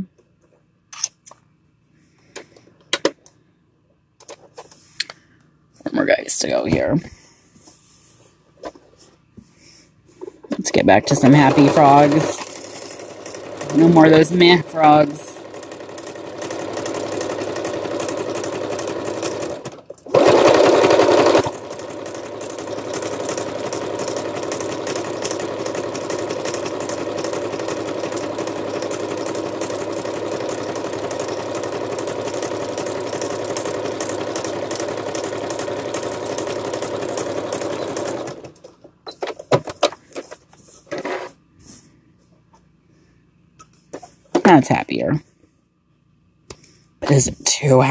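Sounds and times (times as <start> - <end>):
sewing machine stitching: 10.6 - 39.9, 40.9 - 41.4.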